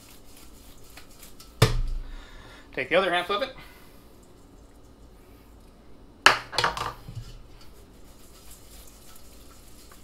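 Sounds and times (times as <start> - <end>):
pasta rustling: 0.0 - 2.4, 6.9 - 10.0
metal colander and bowl clattering: 6.5 - 7.7.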